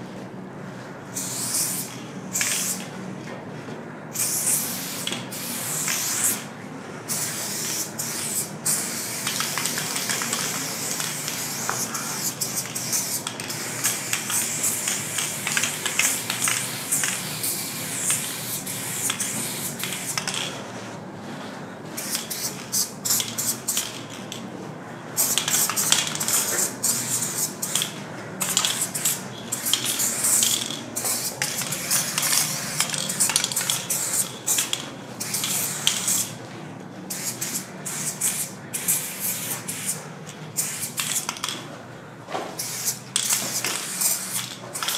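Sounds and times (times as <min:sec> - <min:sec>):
spray cans hissing: 0:01.2 - 0:02.8, 0:07.1 - 0:20.5, 0:22.0 - 0:24.0, 0:25.2 - 0:36.3, 0:37.1 - 0:40.0, 0:40.6 - 0:41.6, 0:42.6 - 0:44.9.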